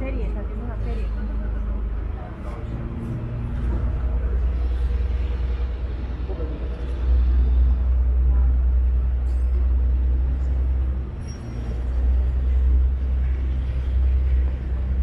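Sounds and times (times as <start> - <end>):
water bus engine rumbling: 0.0 - 15.0.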